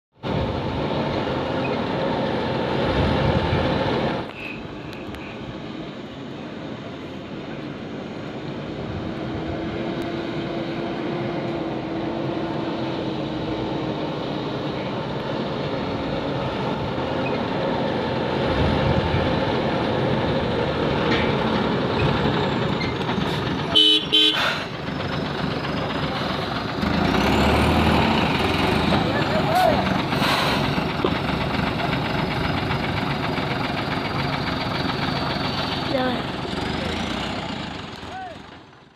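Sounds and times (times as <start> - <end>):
truck diesel engine running: 0.2 - 38.9
truck horn toot: 23.7 - 24.7.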